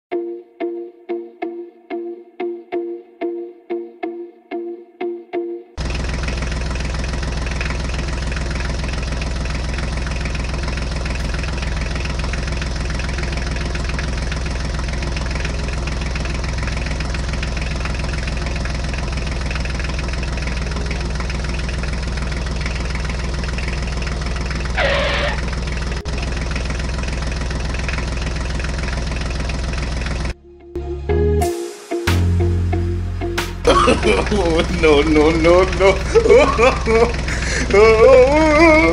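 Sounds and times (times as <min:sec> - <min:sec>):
diesel tractor engine running: 0:05.8 - 0:30.4, 0:33.6 - 0:38.9.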